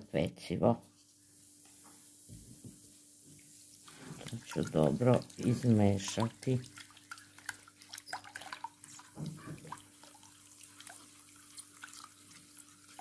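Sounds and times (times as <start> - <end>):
water splashing in a bowl: 3.8 - 13.0.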